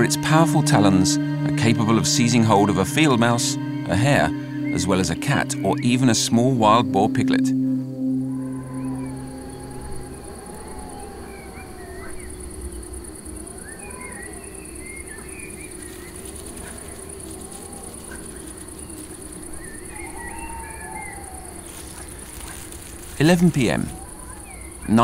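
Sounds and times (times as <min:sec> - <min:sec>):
high-pitched pulsing trill: 0:00.0 - 0:10.9
whistled notes: 0:01.4 - 0:12.8
squeaky chirps: 0:08.2 - 0:25.0.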